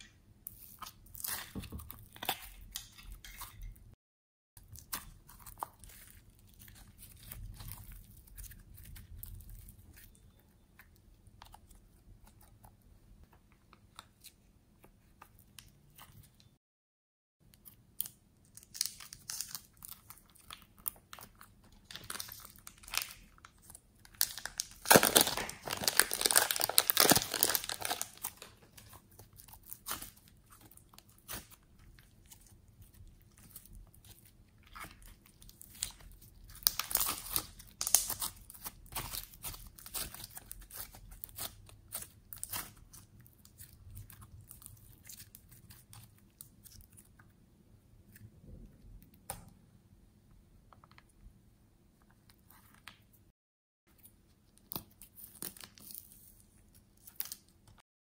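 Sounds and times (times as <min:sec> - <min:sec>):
slime squelching: 0:04.6 - 0:12.8, 0:17.6 - 0:47.3
plastic crinkling: 0:18.6 - 0:46.9.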